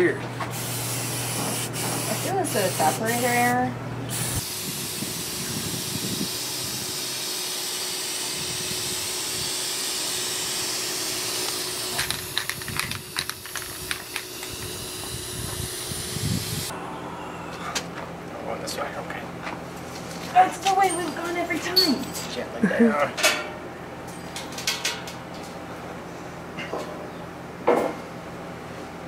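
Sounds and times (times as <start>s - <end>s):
spray paint can hissing: 0.6s - 3.2s, 4.1s - 16.7s.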